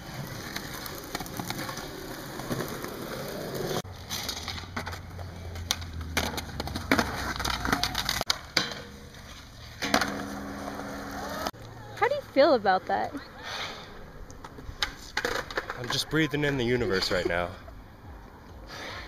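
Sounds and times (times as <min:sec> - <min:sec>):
skateboard clacking on ground: 0:00.0 - 0:11.5, 0:14.3 - 0:17.3
skateboard wheels rolling on concrete: 0:00.0 - 0:19.0.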